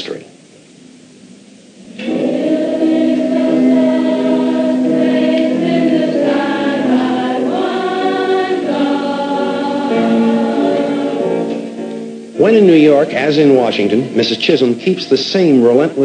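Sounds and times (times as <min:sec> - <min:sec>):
girls choir singing: 0:01.7 - 0:15.6.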